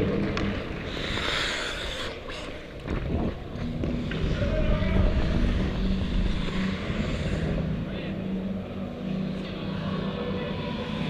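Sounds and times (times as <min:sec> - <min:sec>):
wind rumbling on microphone: 0:01.8 - 0:08.6.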